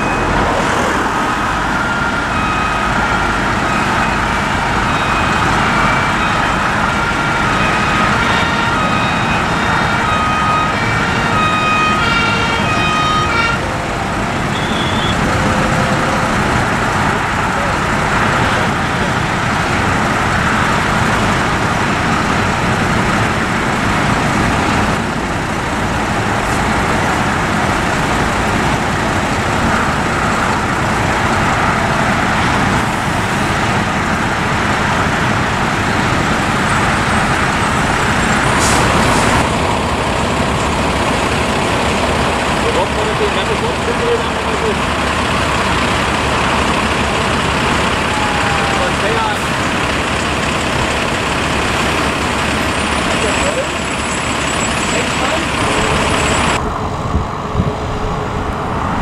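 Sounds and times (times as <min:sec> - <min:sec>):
two-tone siren: 0:00.0 - 0:19.1, 0:43.8 - 0:49.5
fire trucks driving by: 0:00.0 - 0:59.0.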